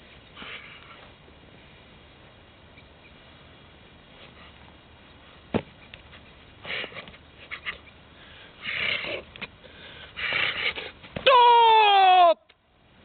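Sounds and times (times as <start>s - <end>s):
short forceful breaths: 8.1s - 11.0s.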